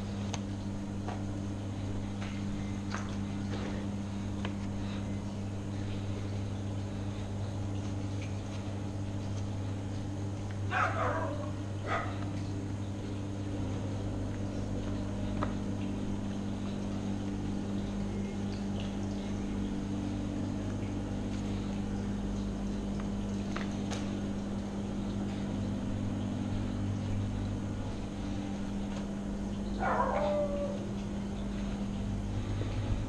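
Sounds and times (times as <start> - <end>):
low machine hum: 0.0 - 33.0.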